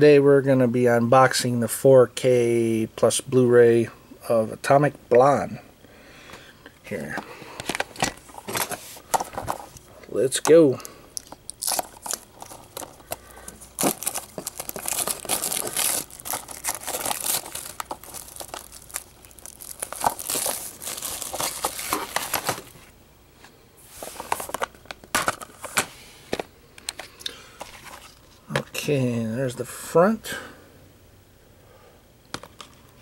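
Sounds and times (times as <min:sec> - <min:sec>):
plastic shrink wrap crinkling: 0:11.2 - 0:22.9, 0:24.0 - 0:25.9.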